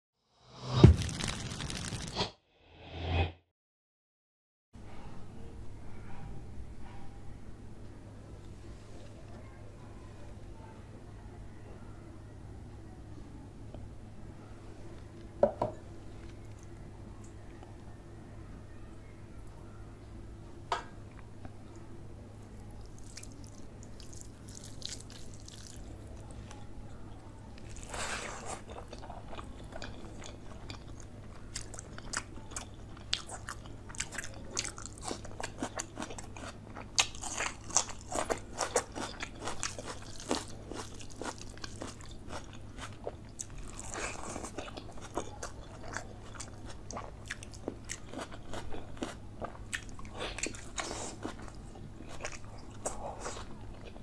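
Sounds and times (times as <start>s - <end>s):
crisp crunches: 0.8s - 2.3s
chewing and biting food: 27.6s - 54.0s.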